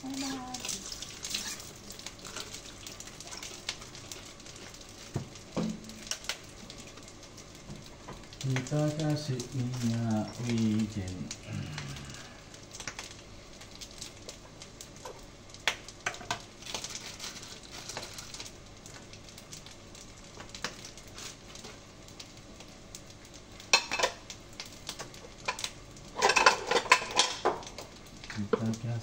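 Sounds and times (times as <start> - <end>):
fried rice sizzling in pan: 0.0 - 29.0
utensil scraping pan: 0.2 - 1.7.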